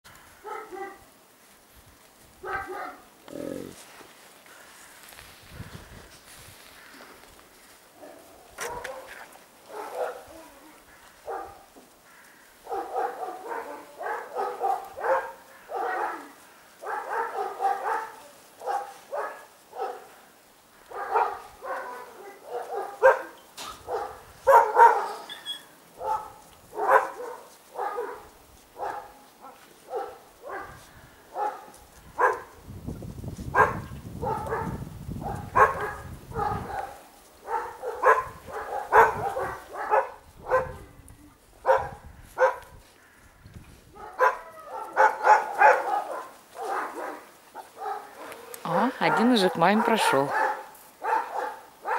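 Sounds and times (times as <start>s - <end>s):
dogs barking and yelping: 0.4s - 1.0s, 2.4s - 3.6s, 8.0s - 10.3s, 11.2s - 11.7s, 12.6s - 20.1s, 20.9s - 30.8s, 31.4s - 32.5s, 33.6s - 40.9s, 41.6s - 42.7s, 44.0s - 51.9s.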